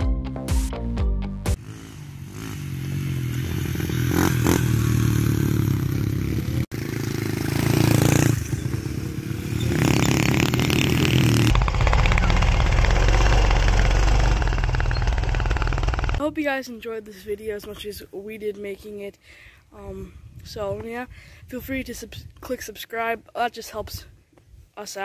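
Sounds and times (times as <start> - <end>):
small off-road engine running: 1.6 - 16.2.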